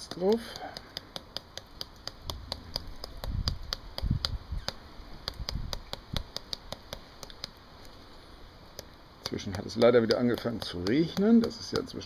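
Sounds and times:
steady sharp ticks: 0:00.0 - 0:08.0, 0:08.7 - 0:12.0.

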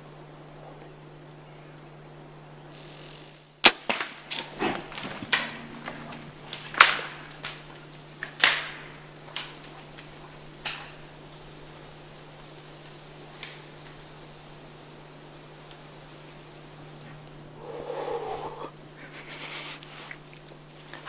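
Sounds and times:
sticks and branches snapping: 0:03.6 - 0:11.1, 0:13.3 - 0:14.0.

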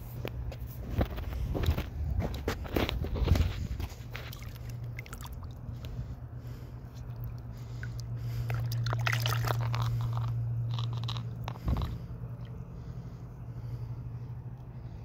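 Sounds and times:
steady low hum: 0:00.0 - 0:15.0
gravel crunching under water: 0:00.1 - 0:05.9, 0:07.2 - 0:12.1
water sloshing: 0:01.7 - 0:12.6.

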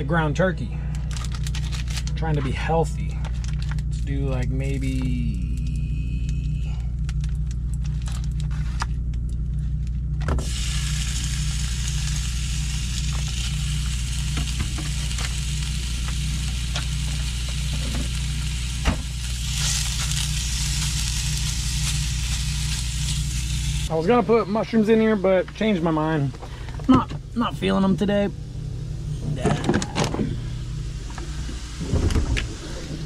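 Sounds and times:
low hum: 0:00.0 - 0:33.0
meat sizzling in a pan: 0:10.4 - 0:23.9.

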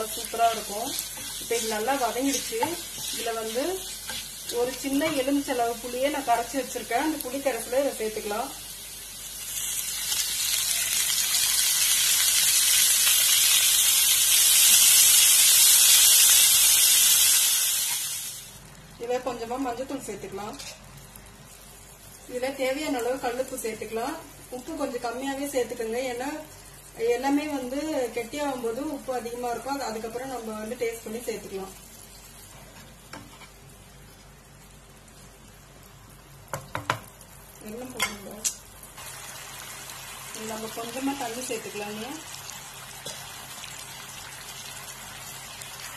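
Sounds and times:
spatula stirring in a pan: 0:00.0 - 0:05.4, 0:32.2 - 0:33.6
liquid sizzling in hot oil: 0:00.0 - 0:19.2, 0:19.9 - 0:45.9.

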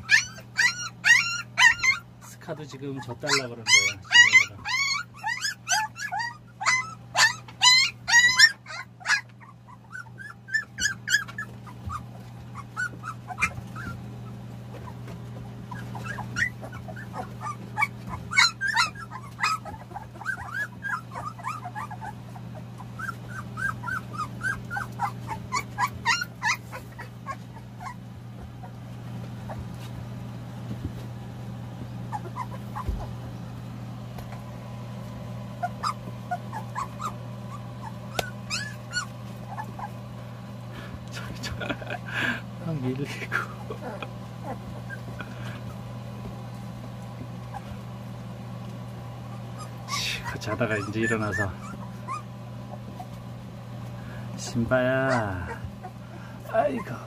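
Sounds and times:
puppies whimpering and squeaking: 0:00.0 - 0:57.0
steady low hum: 0:00.0 - 0:57.0.

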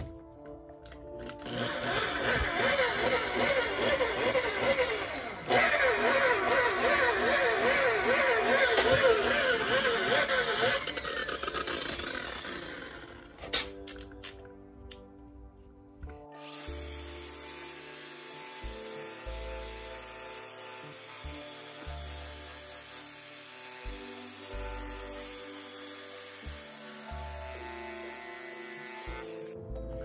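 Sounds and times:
rotary polisher running: 0:01.5 - 0:13.3.

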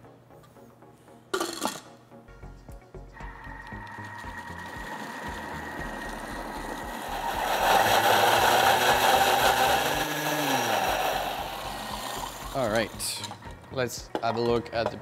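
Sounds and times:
food processor motor whining: 0:03.2 - 0:13.4.

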